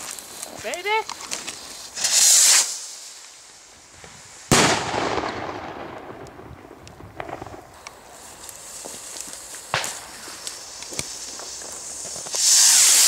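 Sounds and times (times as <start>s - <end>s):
firework launching hiss: 0.0s - 13.0s
firework bang echoing: 4.5s - 7.8s, 9.7s - 13.0s.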